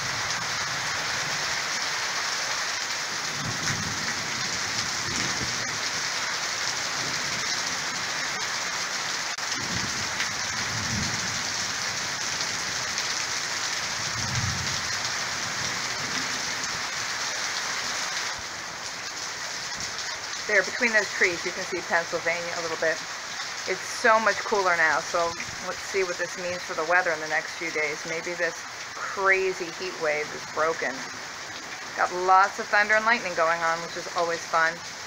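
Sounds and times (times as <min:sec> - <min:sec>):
heavy rain pouring: 0:00.0 - 0:35.0
thunder rumbles: 0:03.2 - 0:06.1, 0:09.4 - 0:12.8, 0:14.0 - 0:16.9.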